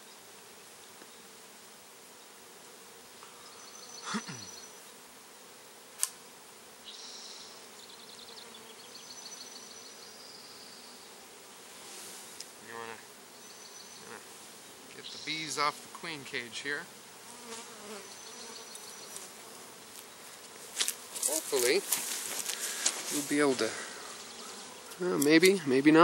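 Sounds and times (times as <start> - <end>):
bees flying past: 0.0 - 26.0
honeybees buzzing: 0.0 - 26.0
sharp click: 6.0 - 6.2.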